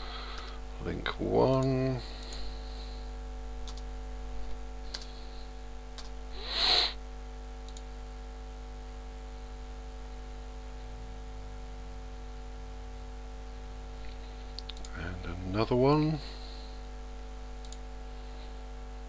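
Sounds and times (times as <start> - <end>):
electrical hum: 0.0 - 19.0
keyboard and mouse clicks: 3.6 - 3.9, 4.9 - 5.2, 6.0 - 6.2, 14.5 - 15.0, 17.6 - 17.8.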